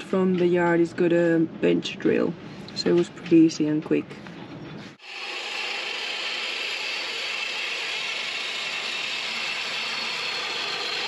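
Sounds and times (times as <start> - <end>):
metalworking machine rasping: 5.0 - 11.0.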